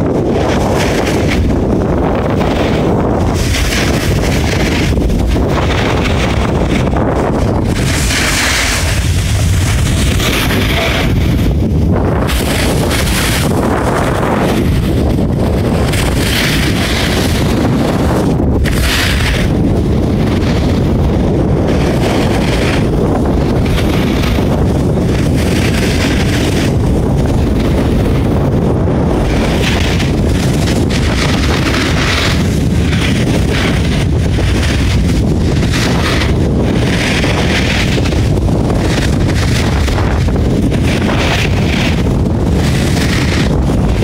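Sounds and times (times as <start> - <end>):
wind buffeting microphone: 0.0 - 44.0
skis hissing on snow: 2.4 - 11.4, 12.2 - 15.0, 15.6 - 18.0, 18.6 - 19.6, 29.2 - 44.0.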